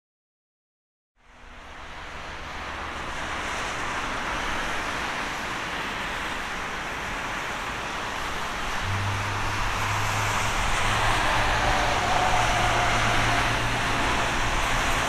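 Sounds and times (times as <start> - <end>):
distant jet noise: 8.6 - 15.0.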